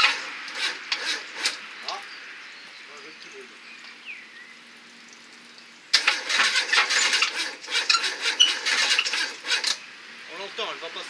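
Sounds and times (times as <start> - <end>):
car engine cranking with loud clatter: 0.0 - 1.6, 5.9 - 9.8.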